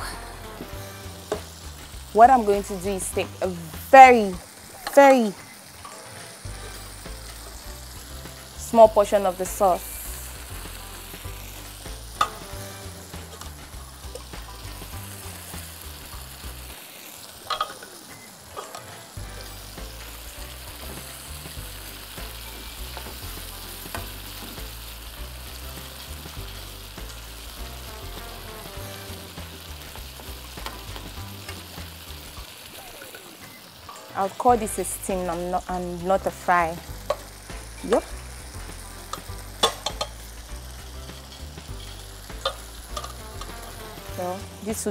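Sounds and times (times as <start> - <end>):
sauce sizzling in a frying pan: 0.0 - 44.9
metal spoon clinking on pan: 17.5 - 17.9, 39.1 - 40.2.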